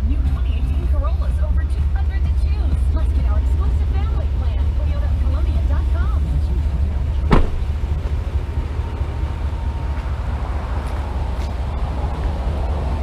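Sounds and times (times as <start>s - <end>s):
low steady rumble: 0.0s - 13.0s
car door slamming shut: 7.3s - 7.9s.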